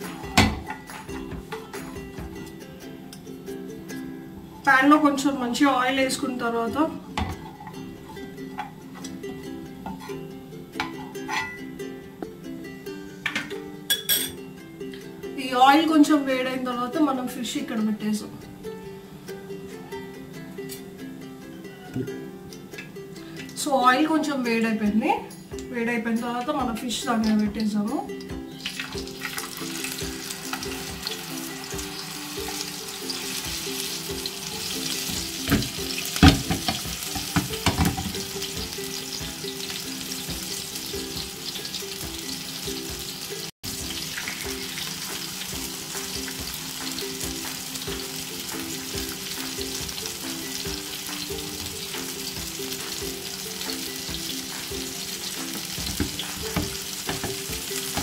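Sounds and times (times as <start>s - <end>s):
fish sizzling in hot oil: 28.5s - 58.0s.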